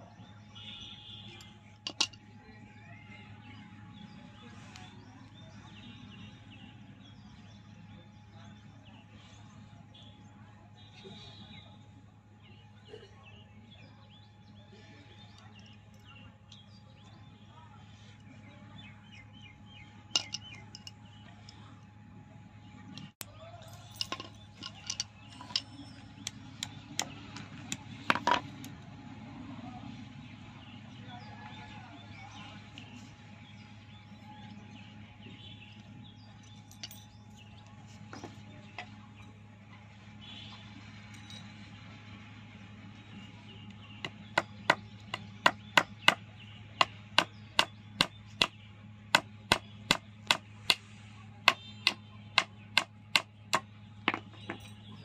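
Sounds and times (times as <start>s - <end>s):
hammer striking nails into wood: 44.1s - 46.2s, 49.2s - 50.8s.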